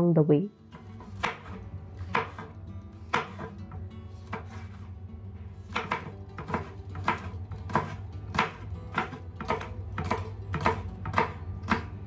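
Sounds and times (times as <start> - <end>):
soft background music: 0.0 - 12.0
knife chopping on wooden board: 0.8 - 4.9, 5.6 - 12.0.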